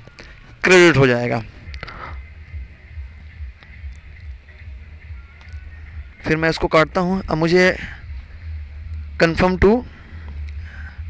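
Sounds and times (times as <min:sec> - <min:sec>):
low background rumble: 0:00.0 - 0:11.0
faint clicks: 0:05.3 - 0:05.6.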